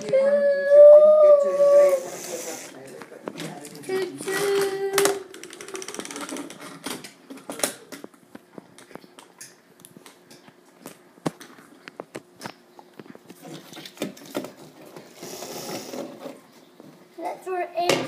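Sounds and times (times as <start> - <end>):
toy train cars clicking on wood: 4.2 - 7.0.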